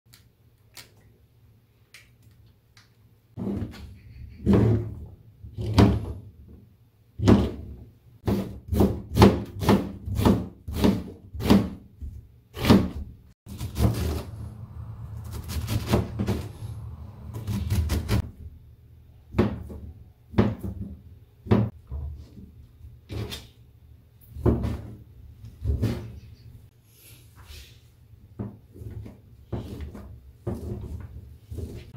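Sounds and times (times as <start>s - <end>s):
knife chopping on plastic board: 8.2s - 11.8s.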